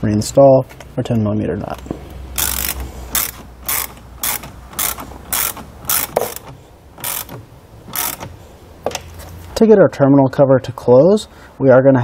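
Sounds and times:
socket ratchet clicking: 2.3 - 9.1.

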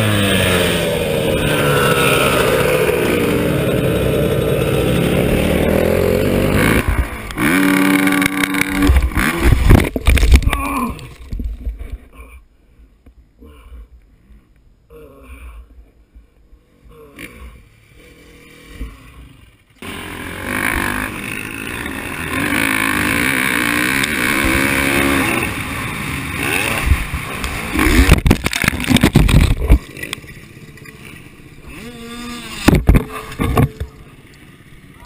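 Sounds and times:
dirt bike engine revving: 0.0 - 10.0, 17.0 - 34.0
wind noise: 8.8 - 12.1, 26.8 - 29.9
heavy thumps and knocks: 32.6 - 33.8.

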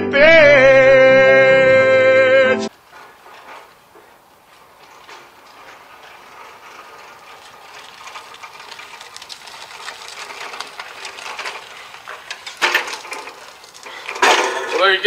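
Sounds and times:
trimmer rattling over gravel: 2.7 - 15.0
loud clunk: 14.1 - 14.8.

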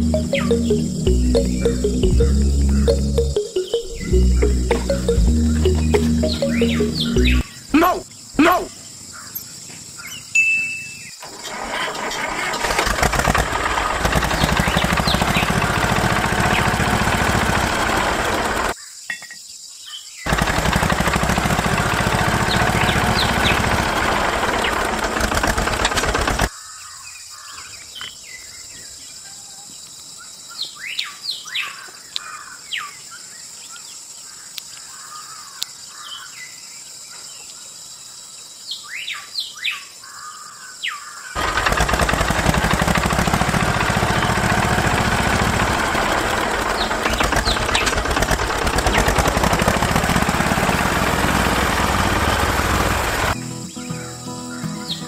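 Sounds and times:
small tractor engine: 0.0 - 8.6, 11.2 - 18.8, 20.3 - 26.5, 41.4 - 53.4
birds chirping: 0.0 - 29.3, 38.7 - 55.0.

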